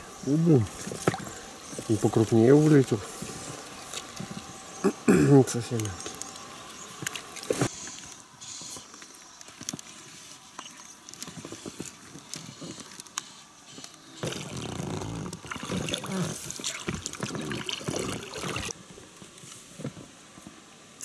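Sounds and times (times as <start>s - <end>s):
oar splashing water: 0.5s - 4.6s, 6.9s - 7.7s, 14.2s - 18.8s.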